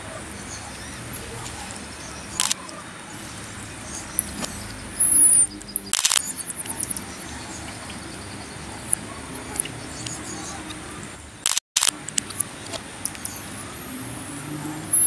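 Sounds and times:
marmoset high chirps: 0.3 - 10.8
sharp clicks: 2.4 - 2.7, 4.2 - 7.0, 11.4 - 13.4.

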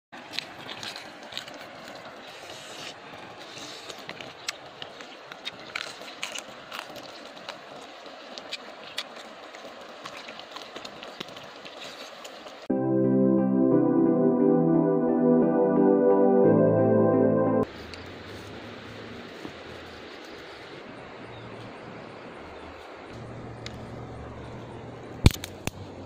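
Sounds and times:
steady outdoor hiss: 0.2 - 26.0
chewing and crunching cartilage: 0.3 - 3.0, 3.6 - 12.1.

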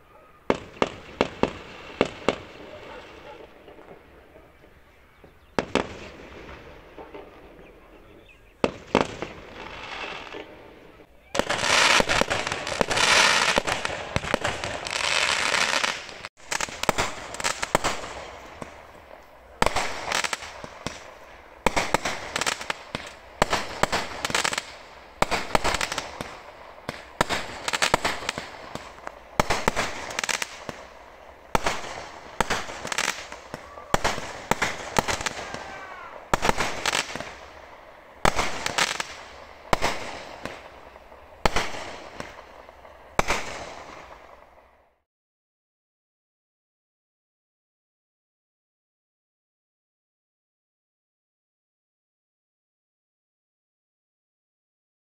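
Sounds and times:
fireworks crackling barrage: 0.0 - 45.0
firework shells banging: 0.4 - 7.8.

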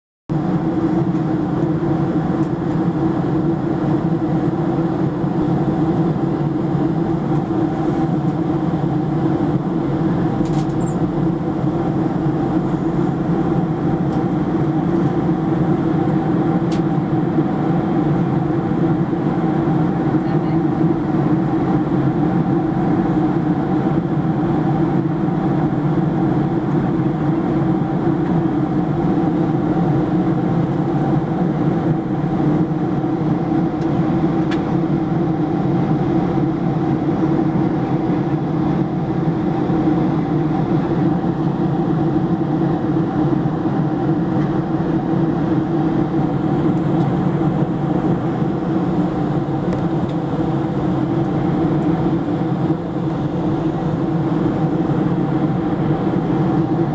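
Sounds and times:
jet engine drone: 0.3 - 56.9.

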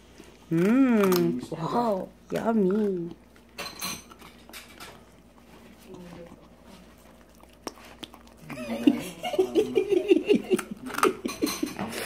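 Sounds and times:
dog chewing on bone: 0.0 - 12.0
person laughing: 8.5 - 12.0.

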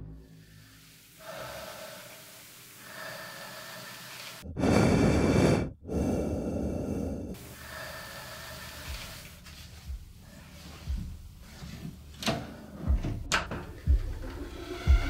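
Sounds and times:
heavy breathing through snorkel mask: 0.3 - 11.6.

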